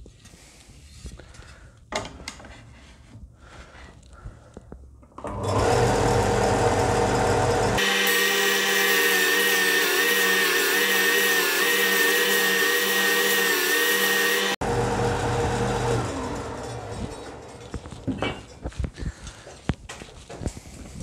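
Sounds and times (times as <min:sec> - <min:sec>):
disc sander grinding wood: 0:05.4 - 0:18.1.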